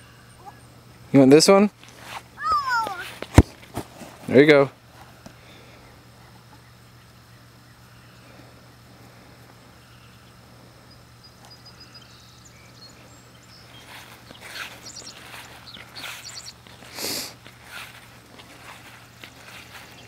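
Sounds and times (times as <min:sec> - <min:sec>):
soft short rustles: 0:13.8 - 0:20.0.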